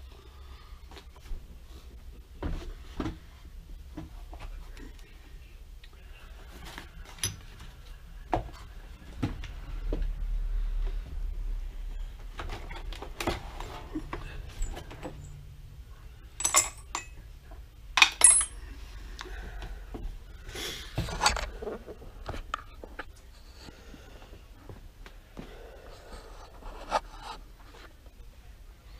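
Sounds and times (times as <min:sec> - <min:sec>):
metal hand tools clinking: 0:16.4 - 0:17.2, 0:18.0 - 0:18.6.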